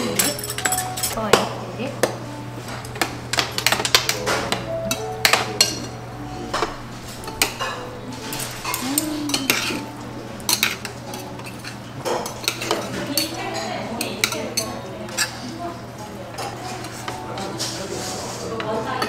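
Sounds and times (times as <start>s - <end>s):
utensils clinking on metal bowl: 0.0s - 1.4s, 2.7s - 15.6s
steady low hum: 0.6s - 12.4s.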